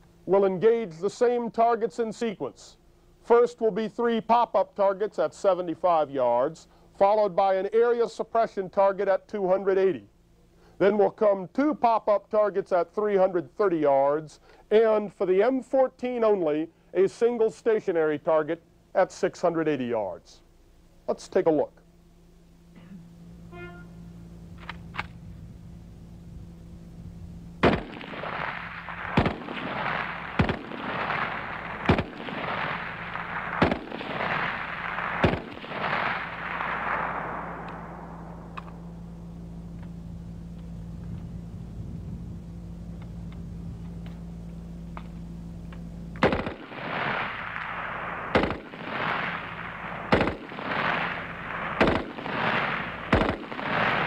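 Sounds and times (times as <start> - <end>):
rifle single shots echoing: 27.6 - 39.6, 46.2 - 54.0.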